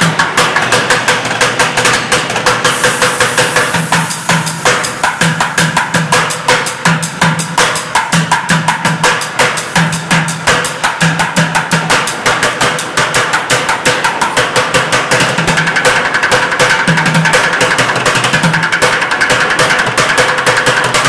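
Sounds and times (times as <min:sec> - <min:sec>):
sticks drumming on plastic buckets: 0:00.0 - 0:21.0.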